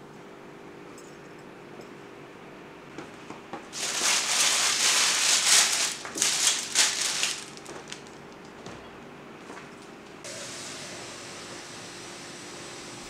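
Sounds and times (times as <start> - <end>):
electric fan humming: 0.0 - 13.0
paper rustling and crinkling: 3.7 - 8.8.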